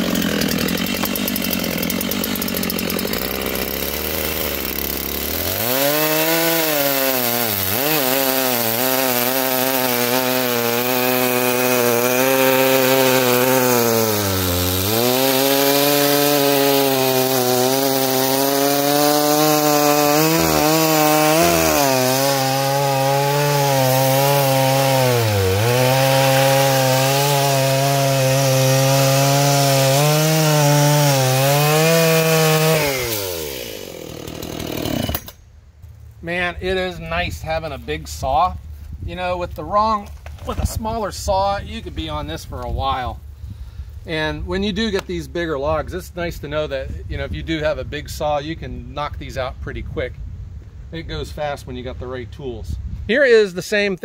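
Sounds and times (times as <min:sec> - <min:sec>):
chainsaw cutting log: 0:00.0 - 0:35.5.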